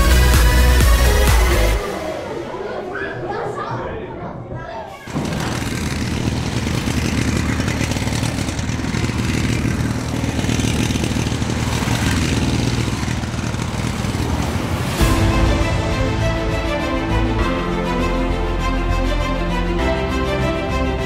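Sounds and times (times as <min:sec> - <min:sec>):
music: 0:00.0 - 0:03.1, 0:15.0 - 0:21.0
engine-like roar: 0:05.0 - 0:21.0.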